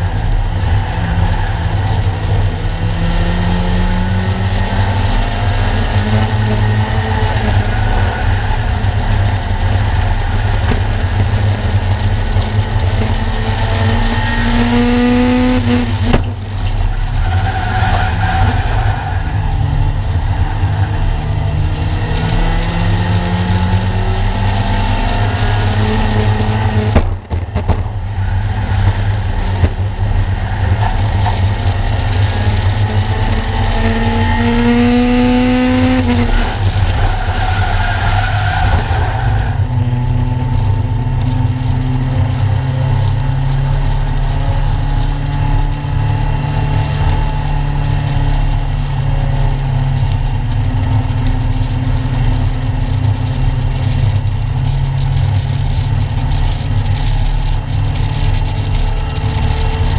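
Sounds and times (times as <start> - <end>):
car engine running: 0.0 - 59.9
road and wind noise: 0.0 - 59.9.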